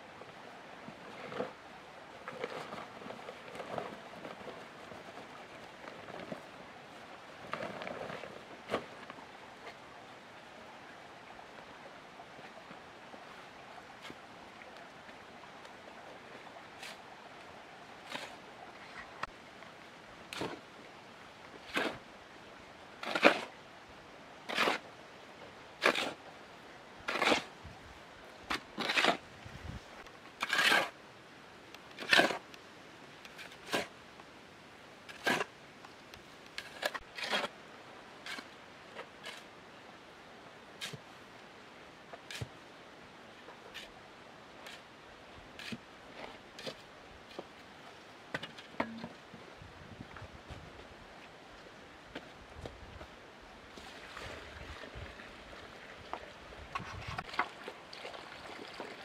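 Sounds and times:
shovel scraping sand and cement: 18.0 - 18.4, 21.6 - 22.0, 23.0 - 23.6, 24.5 - 24.8, 25.8 - 26.2, 27.0 - 27.6, 28.5 - 29.8, 30.4 - 31.0, 32.0 - 32.4, 33.4 - 33.9, 35.1 - 35.5, 36.6 - 37.6, 38.2 - 39.5, 40.8 - 41.0, 45.6 - 47.5.

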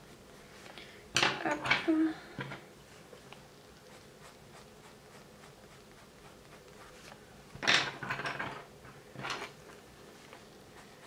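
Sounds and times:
pencil scratching on paper: 3.9 - 7.2.

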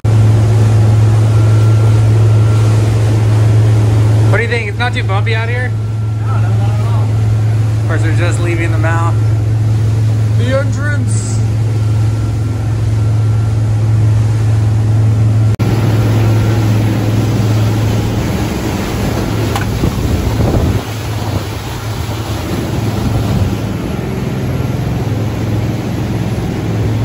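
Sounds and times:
boat engines droning: 0.0 - 27.0
water rushing past hull: 0.0 - 27.0
wind: 0.0 - 27.0.

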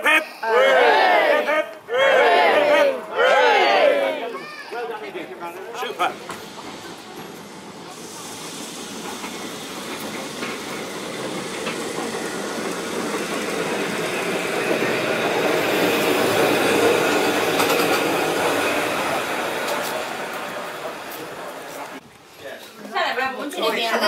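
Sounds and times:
tram rumbling past on rails: 5.0 - 22.0.

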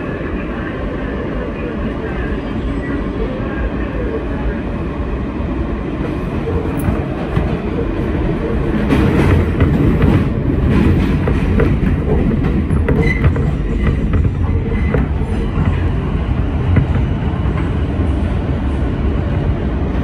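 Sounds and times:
subway train wheels rumbling: 0.0 - 20.0
track clicks and knocks: 8.6 - 17.7.

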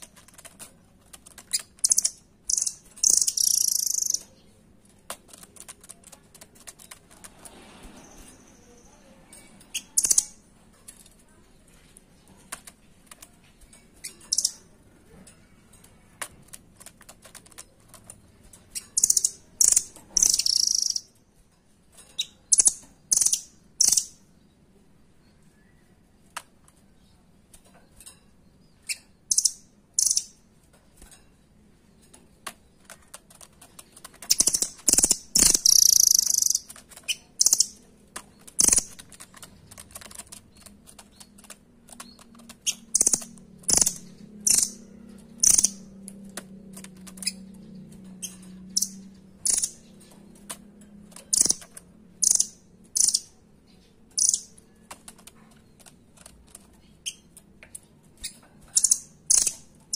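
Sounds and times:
bird high-pitched calls: 1.5 - 4.4, 18.7 - 21.2, 34.3 - 37.8, 45.4 - 45.8
bird clicking and tapping on perch: 32.1 - 53.3.

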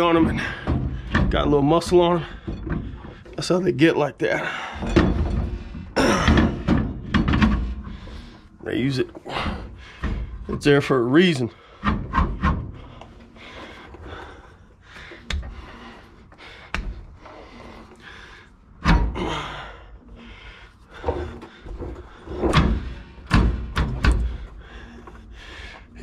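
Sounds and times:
thunks and knocks of tools: 0.2 - 3.4, 4.8 - 8.4, 9.3 - 10.7, 18.8 - 19.3, 21.0 - 25.2.

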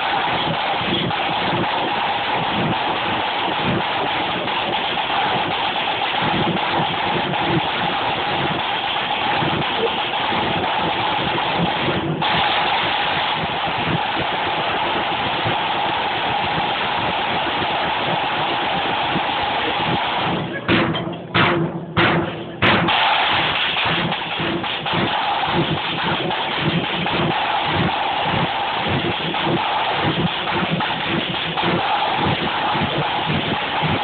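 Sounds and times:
bass drum beats: 0.0 - 34.0
snare drum rolls: 0.0 - 34.0.

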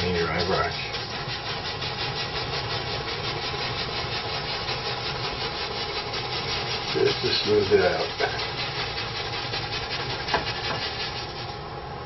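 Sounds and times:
paintbrush scrubbing on canvas: 0.0 - 11.6.

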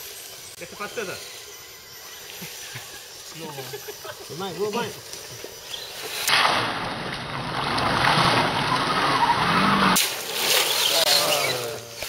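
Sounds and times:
toy truck tires churning mud: 5.8 - 12.0.

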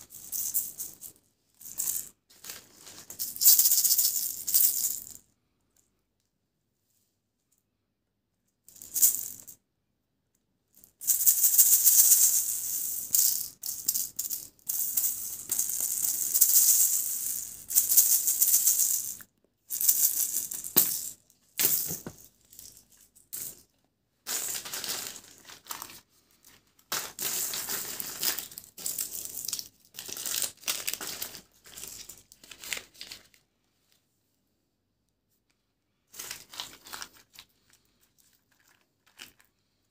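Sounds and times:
plastic candy packaging crinkling: 24.3 - 33.4, 36.2 - 39.8.

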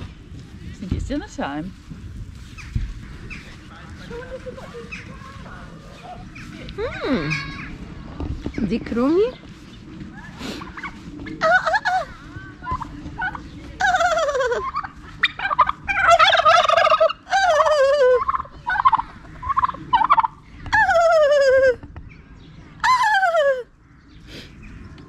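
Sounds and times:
turkeys gobbling: 2.4 - 7.8, 9.3 - 21.9, 22.8 - 23.8.

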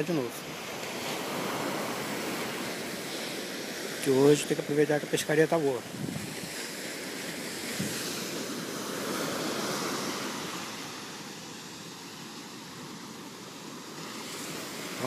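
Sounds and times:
ocean surf breaking on beach: 0.0 - 15.0.

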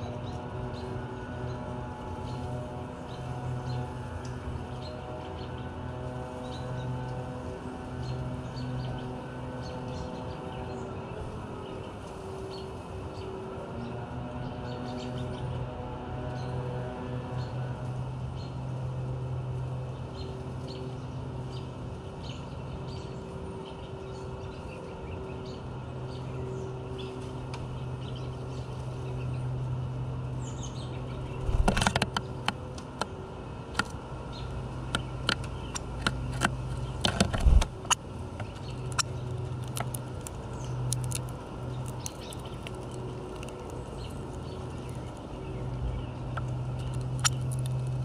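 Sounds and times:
steady low hum: 24.0 - 48.0
bird wingbeats: 31.2 - 32.2, 37.0 - 38.7.

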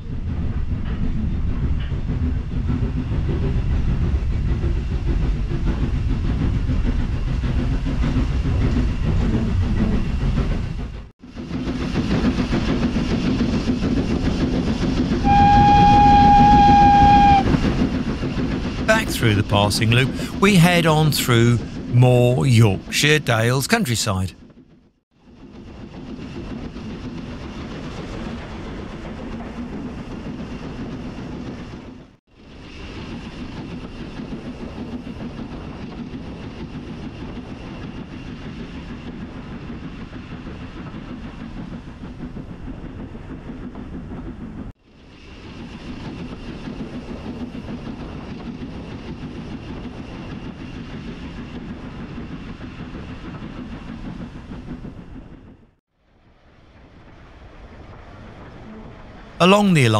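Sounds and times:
train wheels rumbling on rail: 0.0 - 18.9
clickety-clack: 0.2 - 15.2, 45.6 - 55.6.

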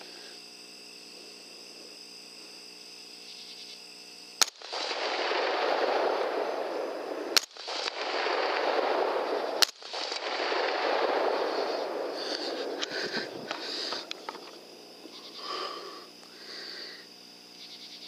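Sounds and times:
insects chirping: 0.0 - 18.0
rifle shots: 4.4 - 15.2.

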